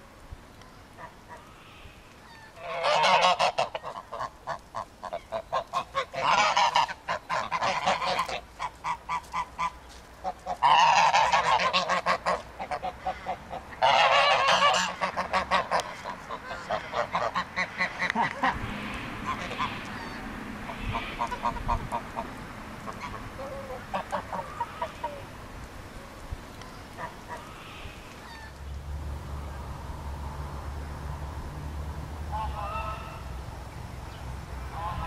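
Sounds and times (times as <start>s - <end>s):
geese honking: 0.9s - 25.4s, 26.6s - 28.6s, 32.3s - 33.4s, 34.6s - 35.0s.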